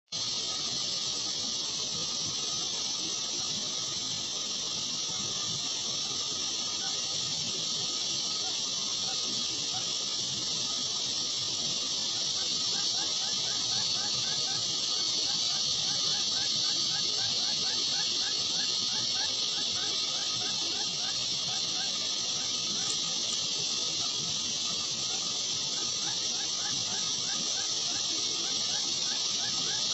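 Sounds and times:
high-pitched hiss: 0:00.1 - 0:29.9.

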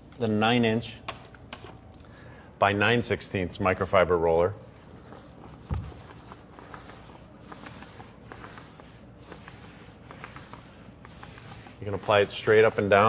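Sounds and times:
paint roller hissing on wall: 0:05.0 - 0:13.0.

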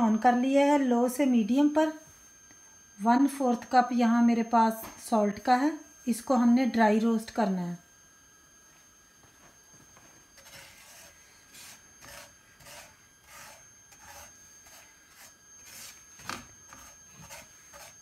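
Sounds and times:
spatula scraping salt in a pan: 0:10.4 - 0:16.1, 0:16.7 - 0:18.0.

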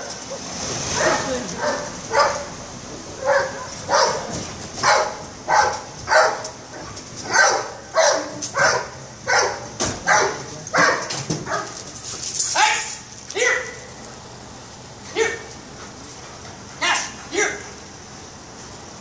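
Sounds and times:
dog barking: 0:01.0 - 0:02.5, 0:03.2 - 0:11.8, 0:12.6 - 0:13.8.

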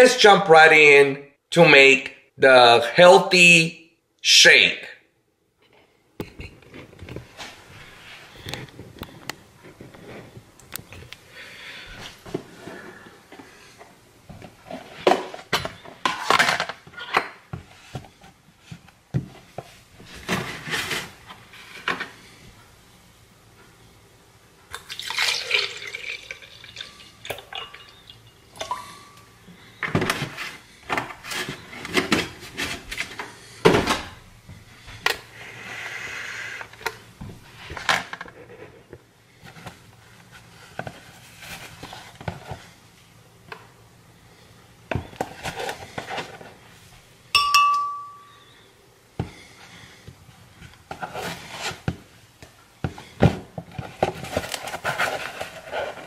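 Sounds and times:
milk pouring: 0:24.7 - 0:29.2
ringing glass clink: 0:27.4 - 0:28.8, 0:47.4 - 0:48.6
utensils clinking and knocking: 0:47.4 - 0:48.5.

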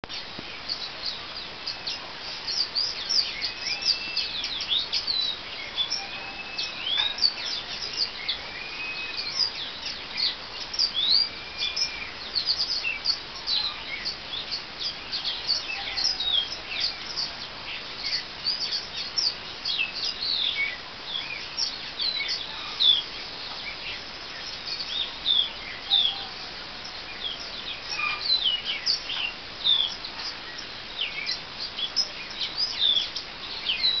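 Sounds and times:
songbirds chirping: 0:00.0 - 0:34.0
whistled bird calls: 0:00.6 - 0:17.4.

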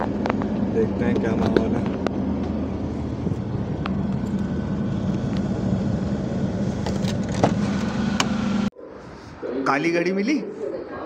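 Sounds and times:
car engine running: 0:00.0 - 0:08.7.

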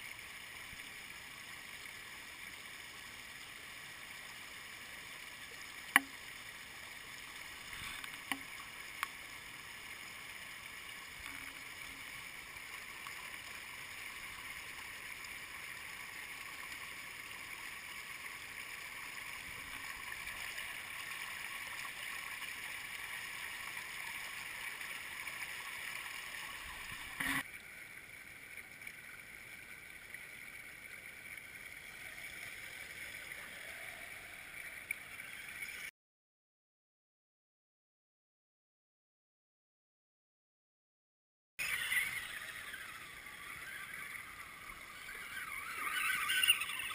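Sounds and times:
stream rushing over stones: 0:02.8 - 0:27.6, 0:41.6 - 0:46.9.

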